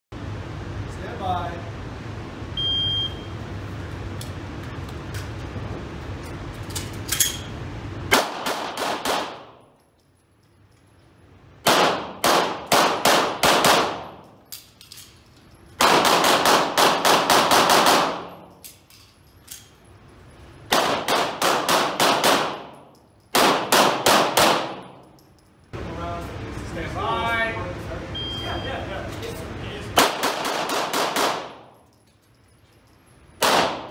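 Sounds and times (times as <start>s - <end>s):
pistol shots ringing indoors: 8.1s - 9.7s, 11.6s - 19.7s, 20.7s - 25.2s, 30.0s - 31.9s, 33.3s - 33.9s.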